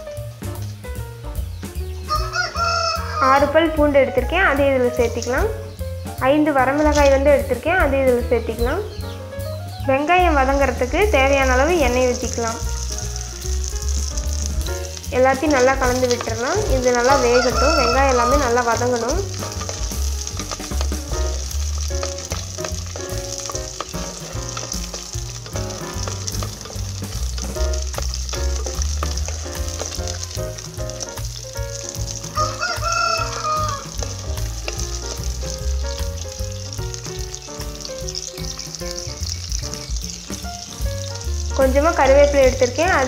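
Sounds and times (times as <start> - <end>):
food sizzling in oil: 0.0 - 43.0
rooster crowing: 2.1 - 3.6, 12.9 - 13.7, 17.1 - 18.6, 28.8 - 30.4, 32.3 - 34.1
ladle stirring in pot: 12.2 - 40.4.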